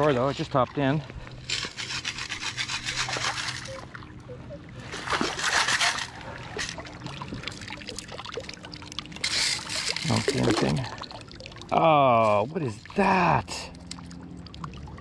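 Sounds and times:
scoop scraping into gravel: 1.5s - 3.8s, 5.2s - 6.8s, 9.2s - 10.8s.

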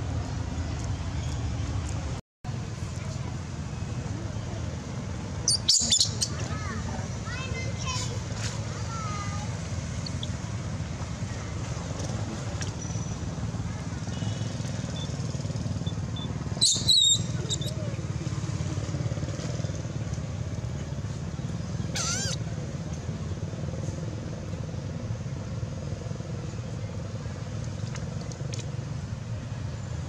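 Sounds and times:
low traffic rumble: 0.0s - 30.0s
infant monkeys squealing: 16.6s - 17.8s, 21.9s - 22.4s.

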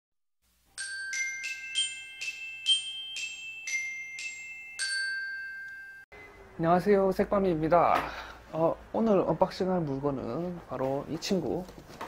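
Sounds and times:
bell-like jingle melody: 0.8s - 6.5s.

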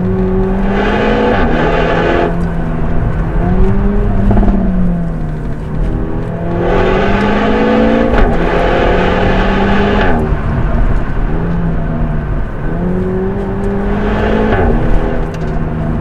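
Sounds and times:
car engine accelerating hard: 0.0s - 16.0s.

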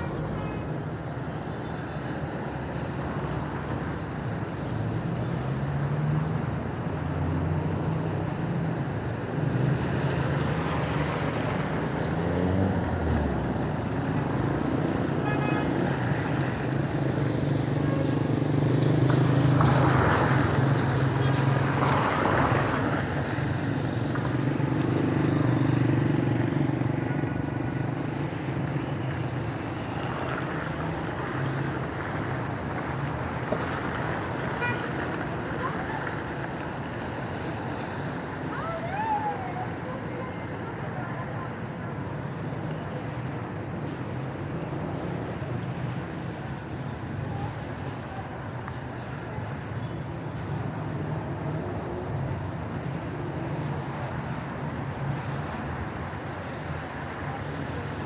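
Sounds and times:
car engines humming: 0.0s - 58.0s
tyres hissing on wet road: 28.0s - 58.0s.

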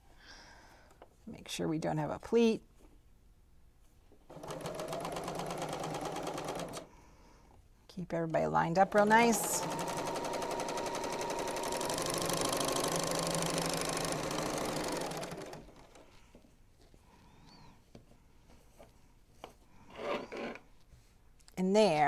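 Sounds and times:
serger sewing machine running: 4.3s - 6.9s, 8.9s - 16.0s.

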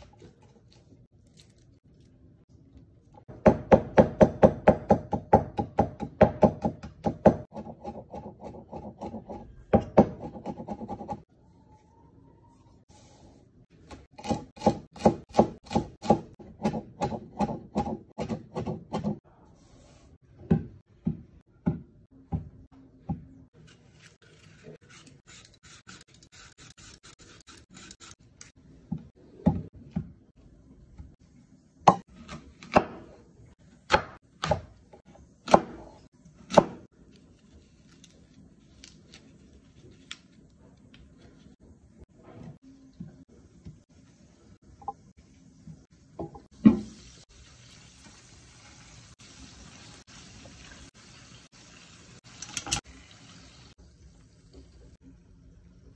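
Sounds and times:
knife chopping on wooden board: 35.5s - 36.9s.

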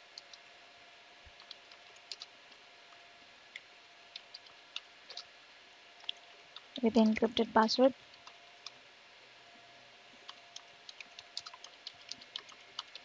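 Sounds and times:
keyboard typing clicks: 10.3s - 13.0s.

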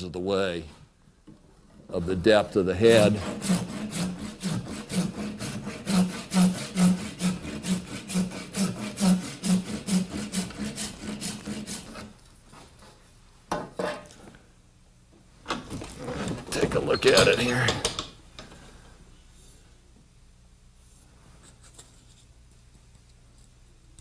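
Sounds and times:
hand saw cutting wood: 2.8s - 12.1s.

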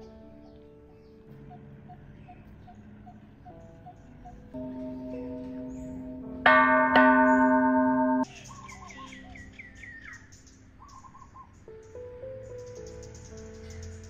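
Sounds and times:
bell chimes: 4.6s - 8.3s.

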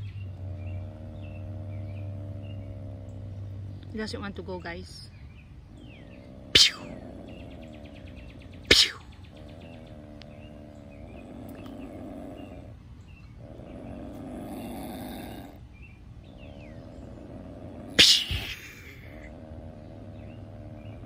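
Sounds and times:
opossum growling: 0.0s - 21.0s
sharp pew sound: 8.7s - 9.0s.

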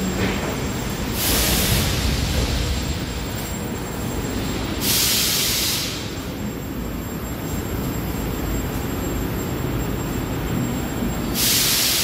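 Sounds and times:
train low rumble: 0.0s - 4.9s
compressed-air hiss: 1.2s - 2.5s, 4.7s - 6.1s, 11.4s - 12.0s.

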